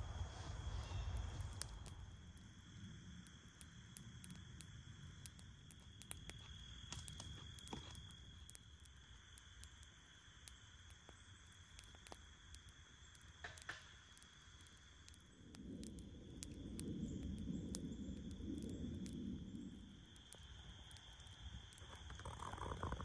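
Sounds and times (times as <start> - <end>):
insect chirring: 0.0 - 23.0
small clicks and soft knocks: 3.6 - 19.2.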